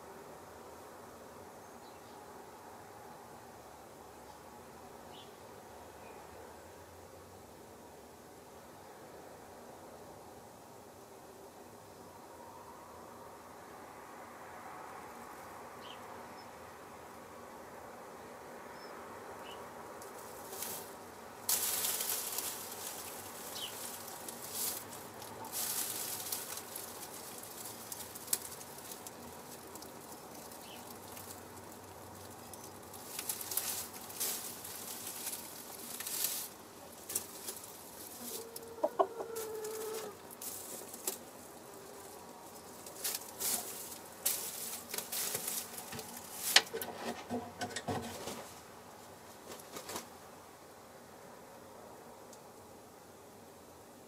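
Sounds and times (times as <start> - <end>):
hen rustling in straw: 20.0 - 47.3, 48.0 - 50.2
hen clucking: 38.2 - 40.2.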